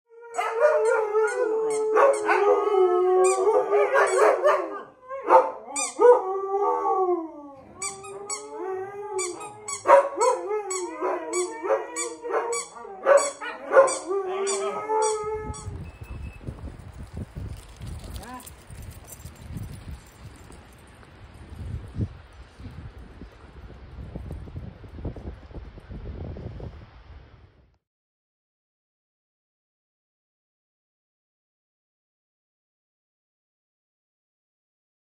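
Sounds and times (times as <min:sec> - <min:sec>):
huskies howling: 0:00.1 - 0:15.6
wind rumble on microphone: 0:14.3 - 0:27.8.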